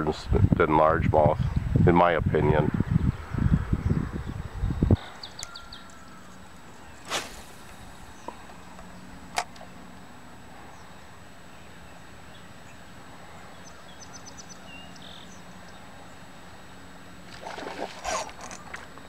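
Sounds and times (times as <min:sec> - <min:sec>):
scuffing noises: 0:07.1 - 0:07.8.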